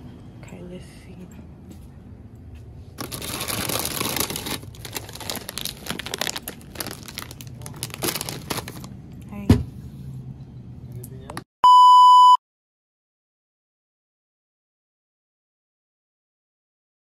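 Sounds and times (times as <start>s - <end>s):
foil chip bag crinkling: 3.0s - 9.0s.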